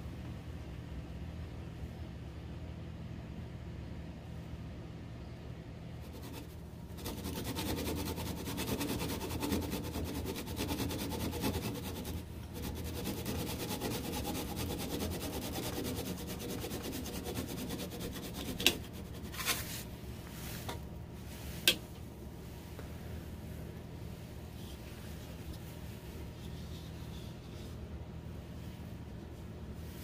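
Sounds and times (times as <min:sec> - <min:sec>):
chisel scraping spinning wood: 0:06.0 - 0:19.9.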